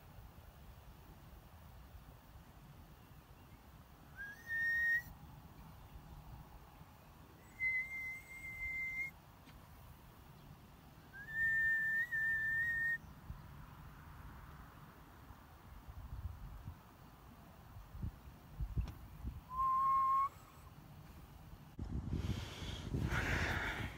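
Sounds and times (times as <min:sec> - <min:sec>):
person whistling long notes: 0:04.2 - 0:05.1, 0:07.6 - 0:09.1, 0:11.2 - 0:13.0, 0:19.5 - 0:20.4.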